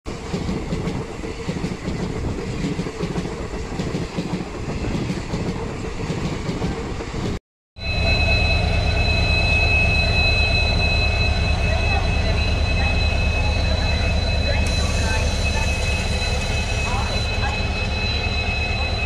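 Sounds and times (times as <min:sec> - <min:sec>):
train wheels rumbling on track: 0:00.1 - 0:19.0
high-pitched tones: 0:07.8 - 0:19.0.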